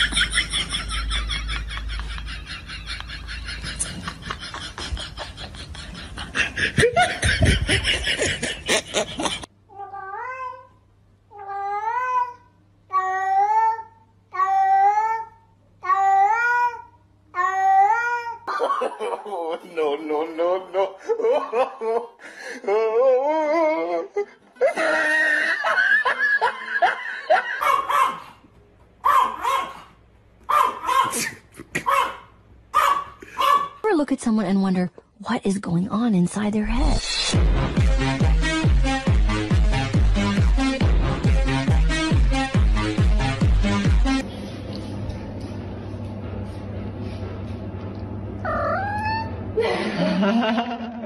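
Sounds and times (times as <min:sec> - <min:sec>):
people laughing hard: 0:00.0 - 0:09.5, 0:18.6 - 0:22.2, 0:24.6 - 0:27.8, 0:49.6 - 0:51.0
low hum: 0:35.0 - 0:51.0.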